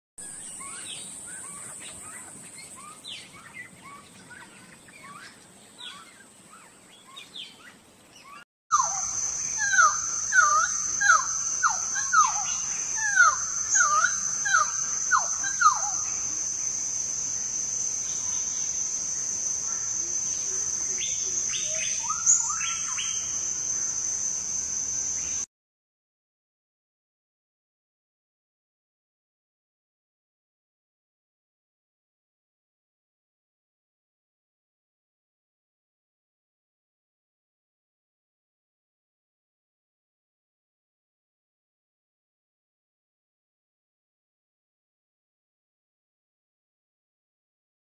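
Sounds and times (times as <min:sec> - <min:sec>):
songbird singing: 0:00.2 - 0:25.5
steady high-pitched hum: 0:08.8 - 0:25.5.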